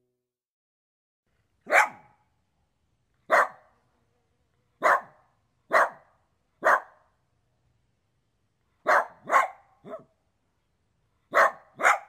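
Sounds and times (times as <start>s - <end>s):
dog barking: 1.7s - 2.2s, 3.3s - 3.7s, 4.8s - 7.1s, 8.8s - 10.2s, 11.3s - 12.0s.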